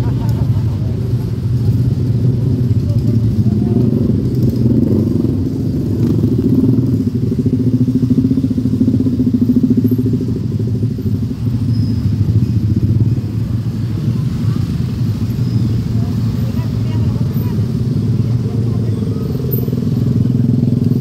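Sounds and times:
scooter and motorcycle engines droning: 0:00.0 - 0:21.0.

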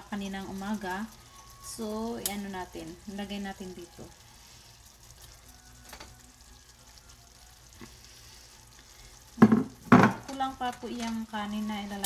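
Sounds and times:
faint sizzle in a pan: 0:00.0 - 0:12.0
cookware knocking: 0:09.4 - 0:10.3.

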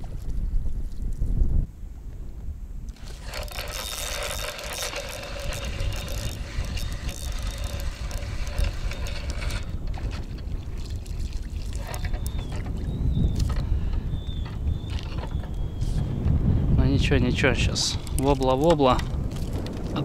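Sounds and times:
wind rumbling on microphone: 0:00.0 - 0:20.0
fishing reel whirring: 0:02.9 - 0:16.0, 0:17.6 - 0:20.0.

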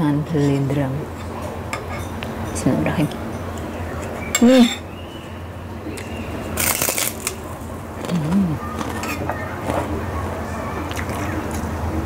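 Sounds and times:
crisp bite: 0:06.6 - 0:09.0
chewing: 0:10.8 - 0:11.6.

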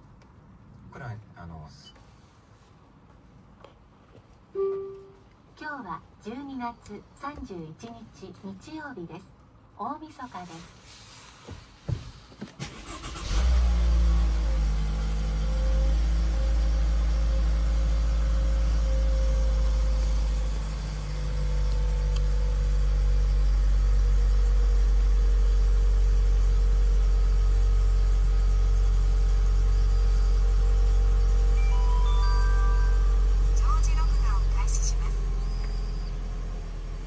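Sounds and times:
car engine starting and idling: 0:12.2 - 0:37.0
ignition clicks: 0:21.7 - 0:22.4.

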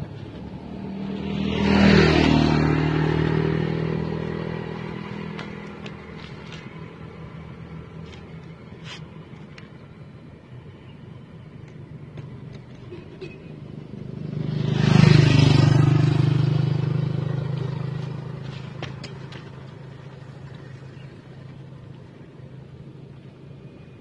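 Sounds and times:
motorcycle passing by: 0:00.0 - 0:08.0, 0:13.5 - 0:22.7.

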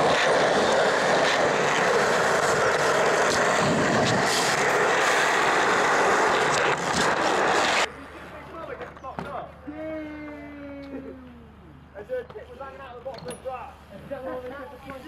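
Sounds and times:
wheels rolling over concrete: 0:00.0 - 0:07.9.

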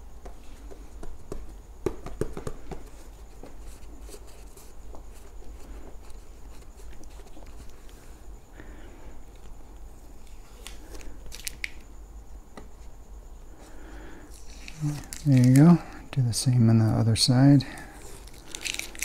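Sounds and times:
sharp taps and knocks: 0:00.2 - 0:03.5.

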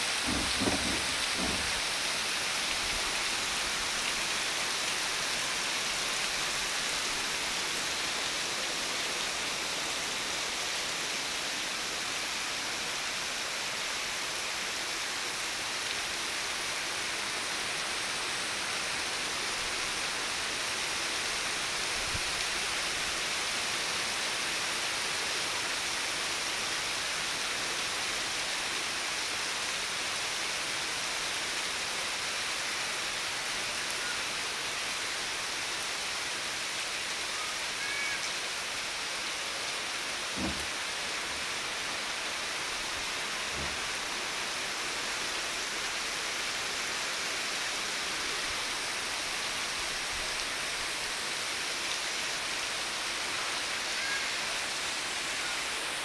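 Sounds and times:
heavy rain pouring: 0:00.0 - 0:56.0
faint low knock: 0:00.3 - 0:01.7, 0:40.4 - 0:40.7.

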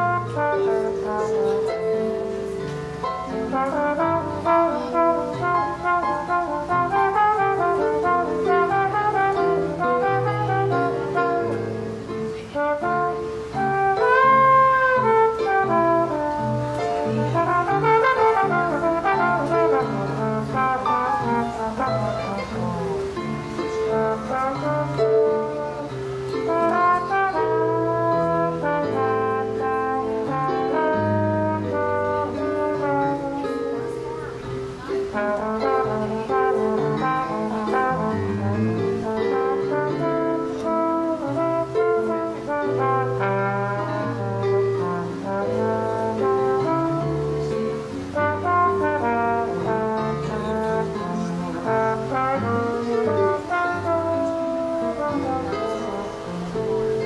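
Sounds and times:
electric keyboard piano: 0:00.0 - 0:57.0
slide trombone playing jazz: 0:00.0 - 0:57.0.

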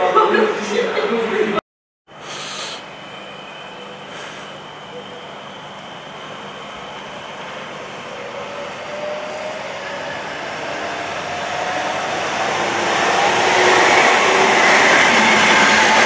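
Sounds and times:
electric train approaching: 0:00.0 - 0:16.0
faint whine: 0:02.4 - 0:10.0.

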